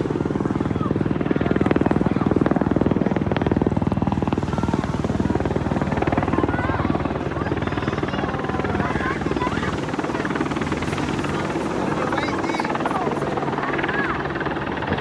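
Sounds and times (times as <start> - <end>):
helicopter rotor beating: 0.0 - 15.0.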